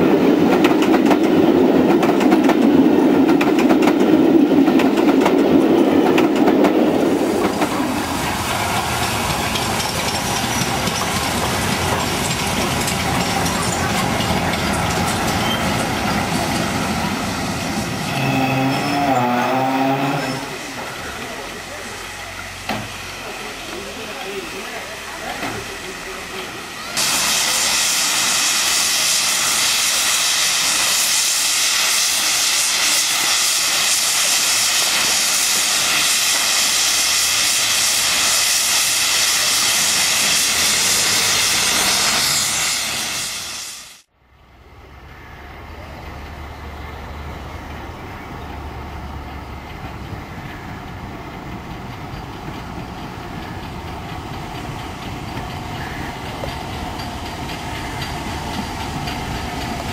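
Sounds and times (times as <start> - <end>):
steam train rumble approaching: 0.0 - 59.9
steam hissing from safety valves: 6.9 - 44.1, 51.4 - 59.9.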